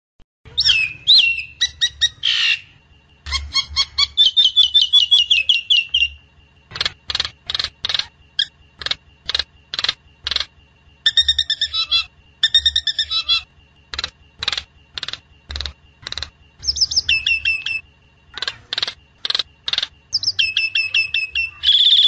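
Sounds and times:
bird whistling: 0:00.5 - 0:02.7, 0:03.3 - 0:06.2, 0:11.0 - 0:13.5, 0:16.6 - 0:17.8, 0:20.1 - 0:22.0.

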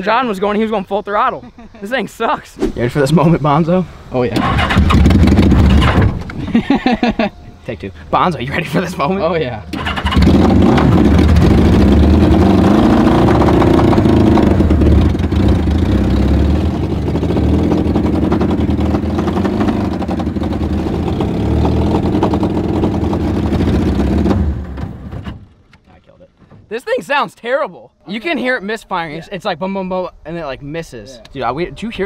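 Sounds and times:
motorcycle engine misfiring: 0:04.3 - 0:06.4, 0:09.7 - 0:12.4.

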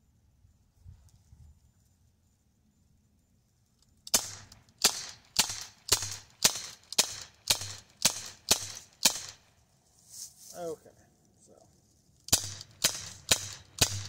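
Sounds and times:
bb pistol shots cracking: 0:04.1 - 0:09.5, 0:12.3 - 0:14.0.

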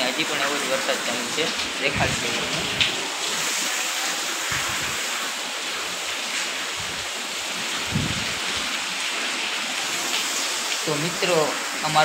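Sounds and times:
heavy rain: 0:00.0 - 0:12.0
low rumble: 0:01.8 - 0:03.1.

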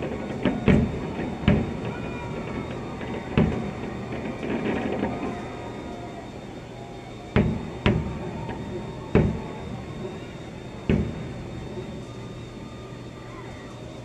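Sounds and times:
fireworks bangs through window: 0:00.0 - 0:05.3, 0:07.4 - 0:09.6.

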